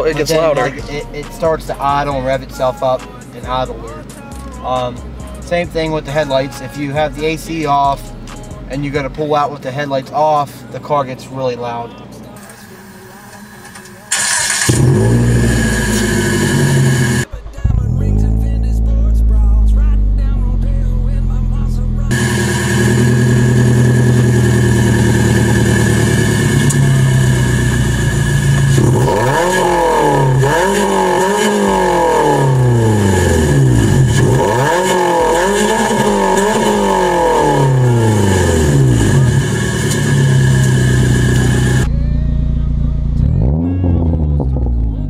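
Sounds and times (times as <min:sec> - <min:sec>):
car engine idling: 0:00.0 - 0:45.0
engine revving: 0:14.1 - 0:42.0, 0:42.6 - 0:45.0.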